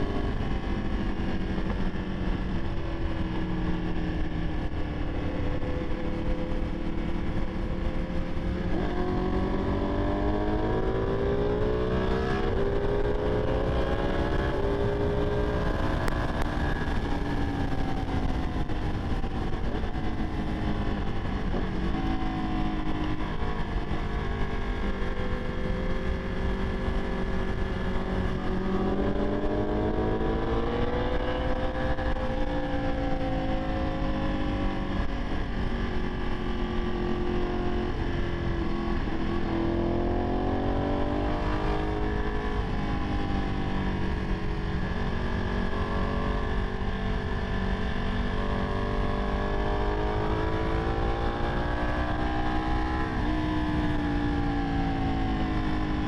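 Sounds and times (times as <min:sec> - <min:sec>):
motorcycle engine under way: 0:00.0 - 0:56.0
wind and road noise: 0:00.0 - 0:56.0.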